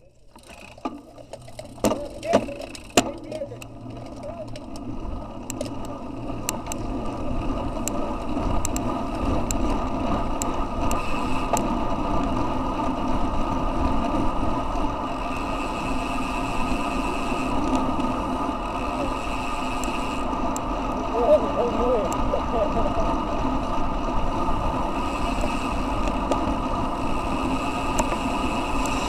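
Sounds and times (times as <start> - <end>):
tyres rolling on asphalt: 0.0 - 29.0
sharp clicks: 8.6 - 9.7.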